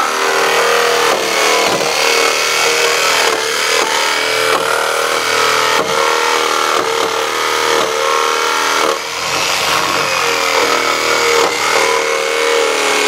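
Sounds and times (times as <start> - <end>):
jigsaw cutting wood: 0.0 - 13.0.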